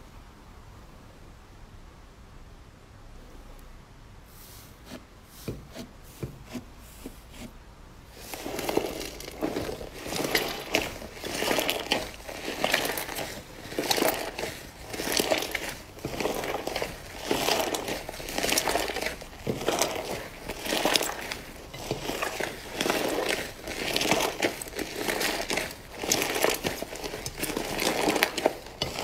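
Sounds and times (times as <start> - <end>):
slime squishing and popping: 8.3 - 29.0.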